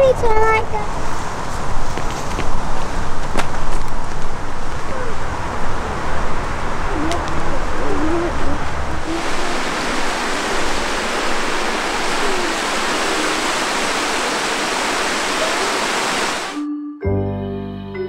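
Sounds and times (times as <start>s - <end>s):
waterfall rushing over rocks: 4.7s - 16.6s.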